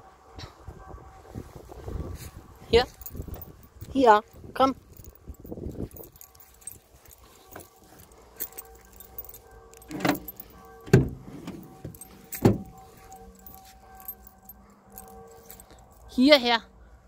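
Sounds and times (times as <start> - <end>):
keys jangling and clinking: 2.2 - 16.2
van door opening: 9.8 - 13.4.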